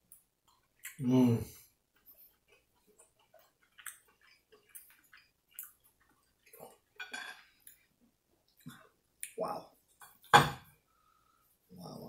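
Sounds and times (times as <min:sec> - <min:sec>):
person chewing: 0:00.1 - 0:01.0, 0:01.6 - 0:09.4.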